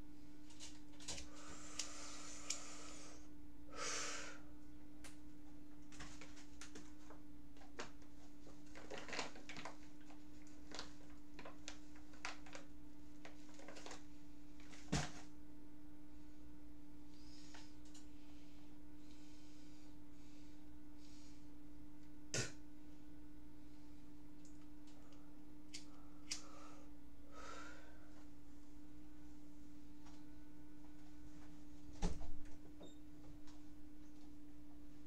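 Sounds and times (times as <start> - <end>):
low electrical hum: 0.0 - 35.0
man breathing and sniffing: 1.2 - 4.4.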